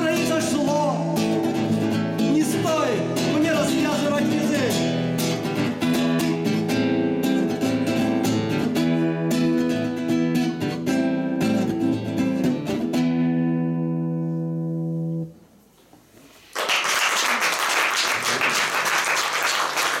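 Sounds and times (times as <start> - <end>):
classical guitar strumming chords: 0.0 - 15.5
audience applause: 16.5 - 20.0.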